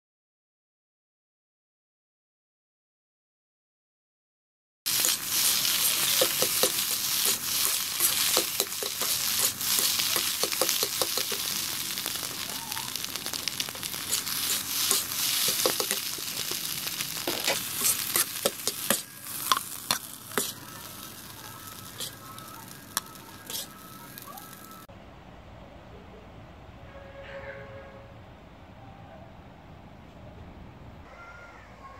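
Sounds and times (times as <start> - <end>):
spatula scraping and tapping wok: 4.9 - 24.8
rice sizzling in a wok: 4.9 - 24.9.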